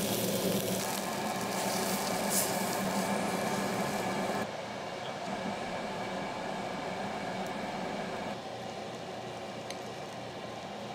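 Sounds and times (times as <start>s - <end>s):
beef sizzling on a grill: 0.0s - 4.4s
fan humming: 0.0s - 10.9s.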